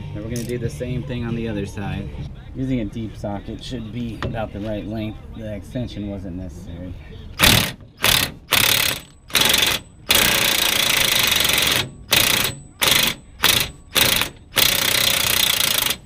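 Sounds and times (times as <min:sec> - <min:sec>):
impact wrench hammering on nut: 0:07.4 - 0:16.0.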